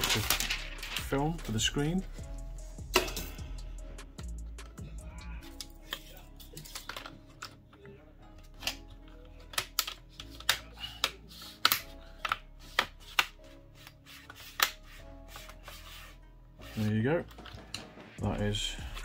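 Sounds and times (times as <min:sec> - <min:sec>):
plastic clips snapping into place: 0:09.5 - 0:13.3.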